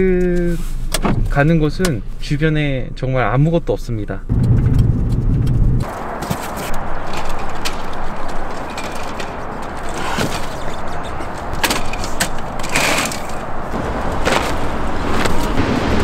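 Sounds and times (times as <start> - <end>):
street traffic rumble: 3.7 - 16.0.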